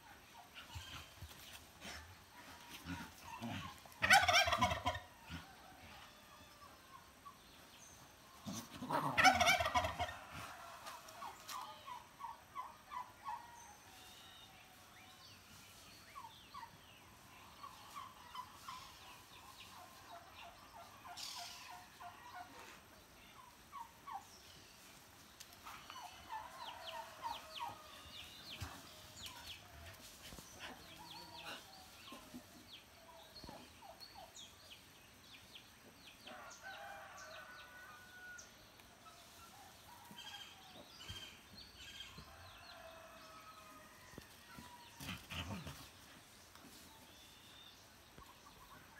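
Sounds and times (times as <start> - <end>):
farmyard fowl calling: 3.4 - 5.5, 8.5 - 13.4.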